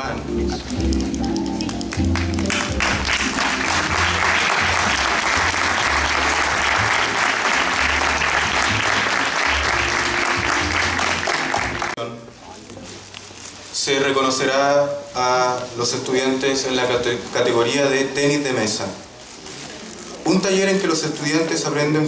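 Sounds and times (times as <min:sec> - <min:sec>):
audience applauding: 0:00.8 - 0:12.0.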